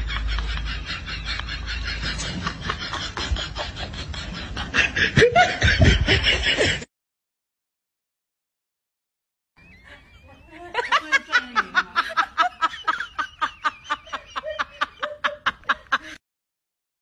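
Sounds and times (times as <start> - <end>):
person laughing hard: 0.0 - 6.9, 9.9 - 16.2.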